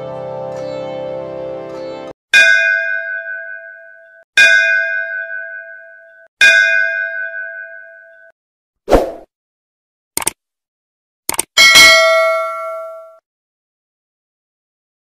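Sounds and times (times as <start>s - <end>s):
short whoosh: 8.9s - 9.3s
quick double click: 10.2s - 10.4s, 11.3s - 11.5s
bell ringing: 11.6s - 13.2s.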